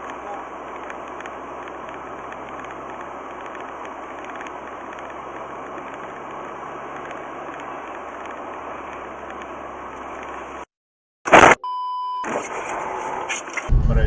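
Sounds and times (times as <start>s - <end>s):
tyre and road noise: 0.0s - 10.7s
low engine hum: 13.7s - 14.0s.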